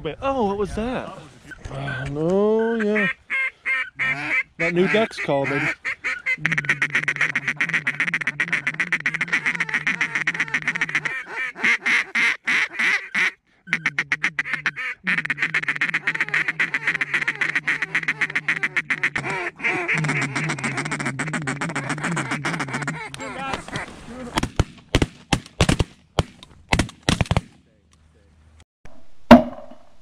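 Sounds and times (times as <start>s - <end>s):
duck calls quacking: 1.5s - 24.4s.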